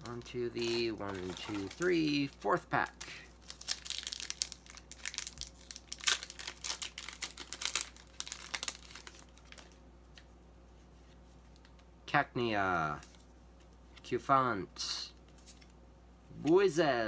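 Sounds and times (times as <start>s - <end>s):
foil wrapper crinkling: 0.0s - 9.8s.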